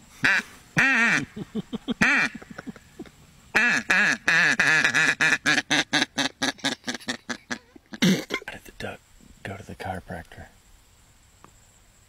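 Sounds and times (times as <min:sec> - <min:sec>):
duck call quacking: 0:00.2 - 0:01.3, 0:02.0 - 0:02.6, 0:03.6 - 0:08.1
person laughing: 0:01.1 - 0:03.2, 0:06.7 - 0:08.5.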